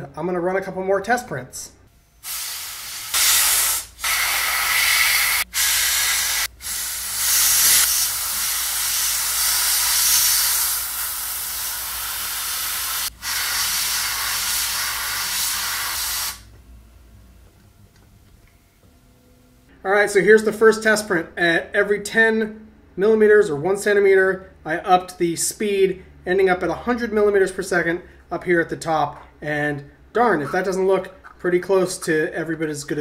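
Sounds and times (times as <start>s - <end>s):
compressed air hissing from blowgun: 2.2s - 16.5s.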